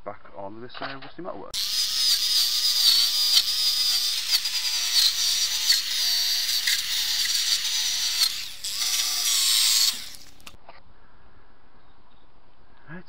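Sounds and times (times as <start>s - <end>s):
electric drill motor whine: 1.6s - 10.6s
wire brush scratching metal: 2.0s - 10.6s.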